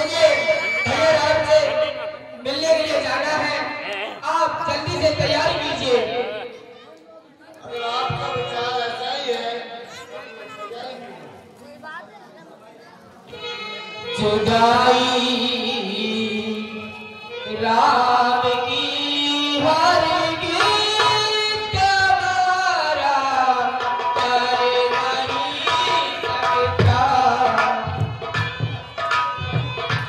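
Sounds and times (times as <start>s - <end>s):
tabla: 0.0s - 6.8s, 7.6s - 10.7s, 13.3s - 30.0s
man singing through microphone: 7.6s - 9.7s, 13.8s - 28.6s.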